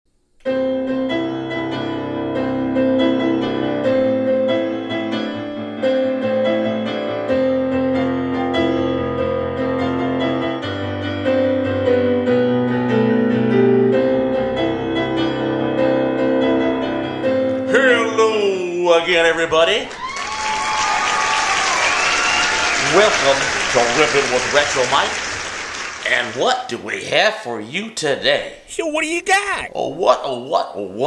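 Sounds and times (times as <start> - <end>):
piano music: 0.4 - 19.9, 21.6 - 25.7.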